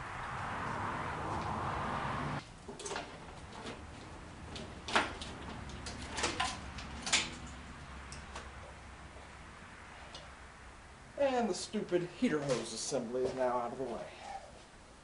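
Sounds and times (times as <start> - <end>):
steady rushing noise: 0.0 - 2.4
clicks and clatter of hose removal: 2.6 - 8.5.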